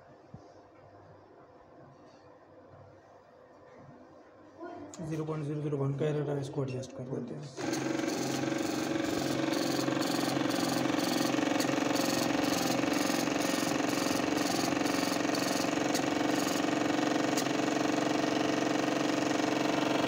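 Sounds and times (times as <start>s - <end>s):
printer running: 7.6s - 20.0s
printer ticking: 7.6s - 20.0s.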